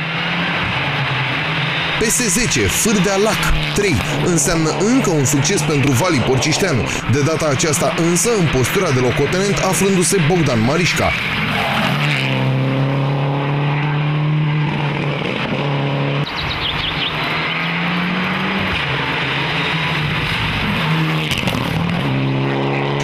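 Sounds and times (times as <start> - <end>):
rally car engines at high revs: 0.0 - 23.0
tire squeal: 2.8 - 12.5, 16.2 - 17.9.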